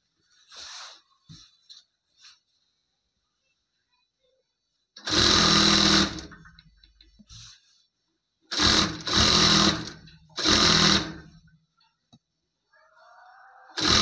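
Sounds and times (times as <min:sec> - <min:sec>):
sewing machine stitching: 0:05.0 - 0:06.6, 0:08.5 - 0:11.4, 0:13.7 - 0:14.0.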